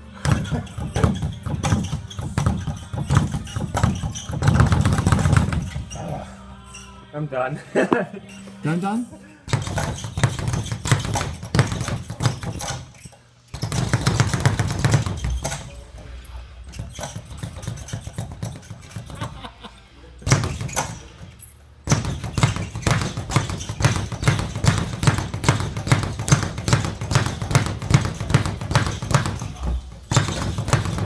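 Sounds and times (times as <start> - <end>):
speed bag rattling: 20.3 - 31.0.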